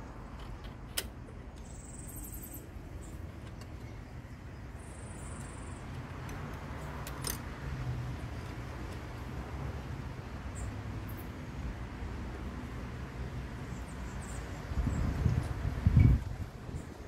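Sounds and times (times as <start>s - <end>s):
small metal clicks and clinks: 6.2s - 7.5s.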